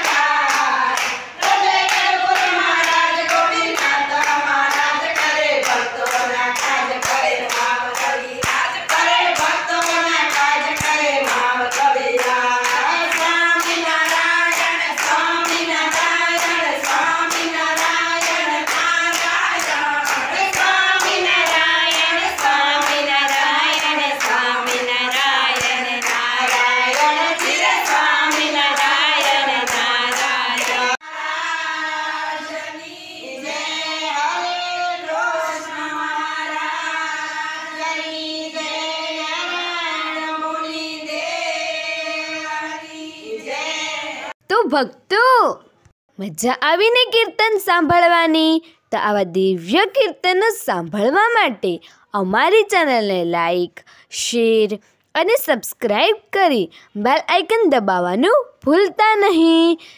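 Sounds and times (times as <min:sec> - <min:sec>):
steady handclaps: 0:00.0 - 0:31.0
women singing devotional song: 0:00.0 - 0:45.1, 0:47.0 - 0:59.9.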